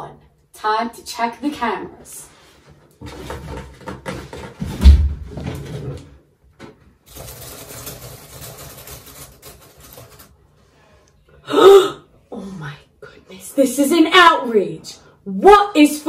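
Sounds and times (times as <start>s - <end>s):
person exclaiming: 11.5s - 12.0s.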